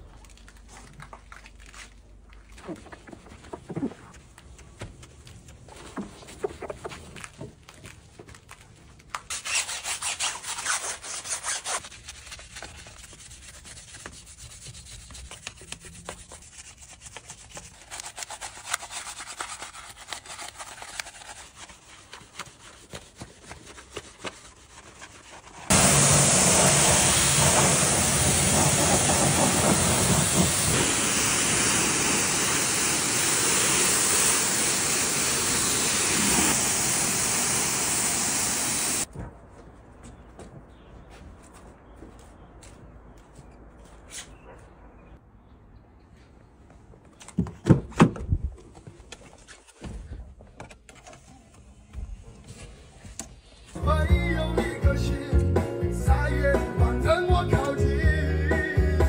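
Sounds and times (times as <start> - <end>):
scrubbing a car wheel: 9.3 - 39.0
pressure washer spraying: 25.7 - 39.1.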